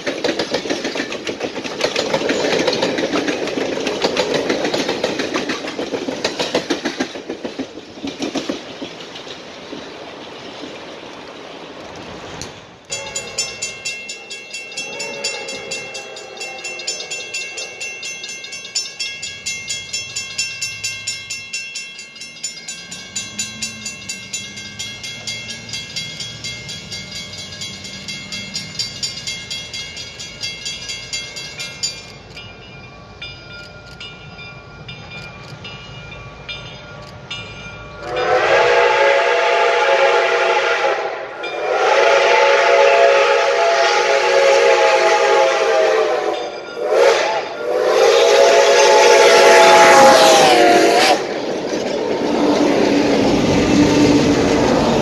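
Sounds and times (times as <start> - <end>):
steam whistle blasts: 12.9 - 13.4, 14.8 - 17.1, 38.0 - 51.3
steady bell ringing: 12.9 - 38.2, 46.2 - 48.0.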